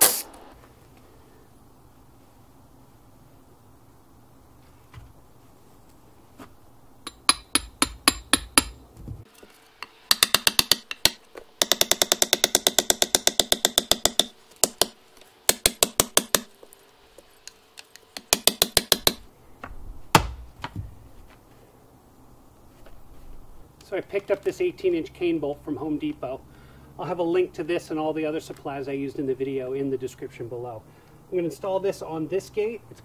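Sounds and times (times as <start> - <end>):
hammer striking metal pipe: 7.1 - 8.8, 9.8 - 16.5.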